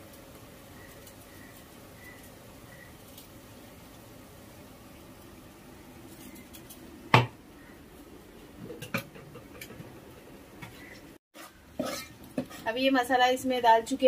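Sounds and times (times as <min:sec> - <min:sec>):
faint steady hum: 0:00.0 - 0:11.2
metal kitchenware clanking: 0:11.4 - 0:12.6.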